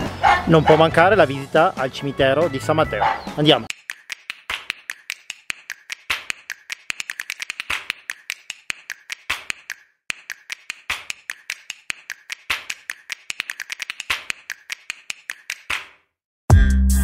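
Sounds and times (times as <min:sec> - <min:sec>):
percussive music of clicks and taps: 0:03.7 - 0:16.1.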